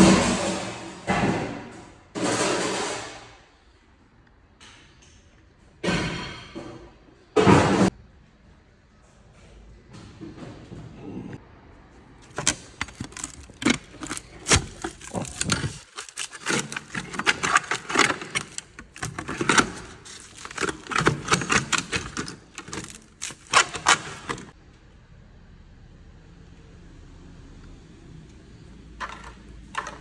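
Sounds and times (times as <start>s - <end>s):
metallic clattering and rattling: 12.3s - 24.6s.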